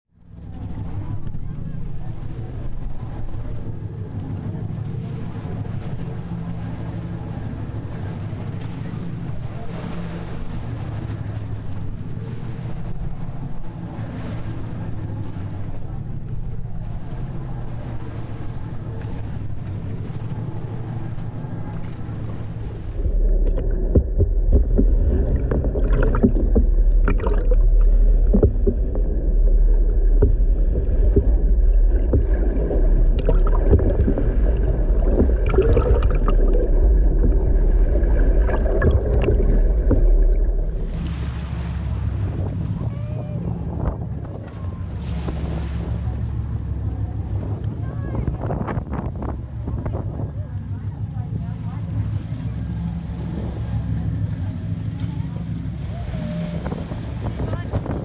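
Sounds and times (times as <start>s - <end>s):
boat engines idling: 0.1s - 58.0s
deep underwater rumble: 0.1s - 58.0s
water noise: 0.1s - 58.0s
underwater clicks and knocks: 21.7s - 41.1s.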